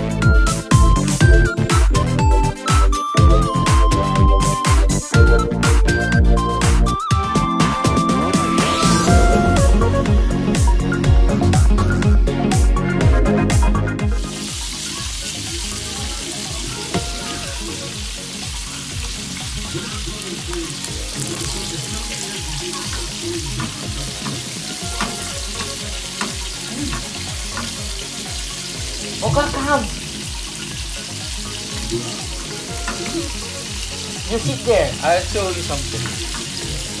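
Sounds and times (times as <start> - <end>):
cooking oil sizzling in a frying pan: 14.0 - 37.0.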